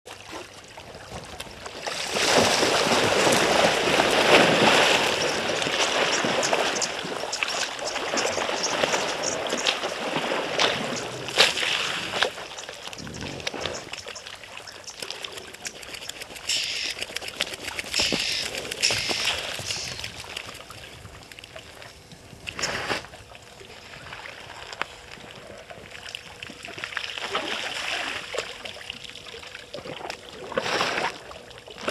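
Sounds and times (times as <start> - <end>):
heavy water splashing: 1.2 - 20.8.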